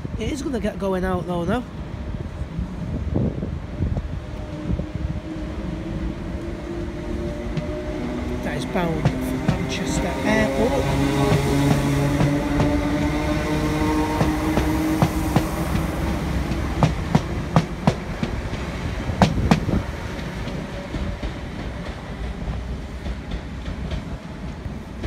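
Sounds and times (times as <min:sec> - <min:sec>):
electric train motors humming: 0:03.6 - 0:25.0
wheels clacking over rail joints: 0:06.2 - 0:25.0.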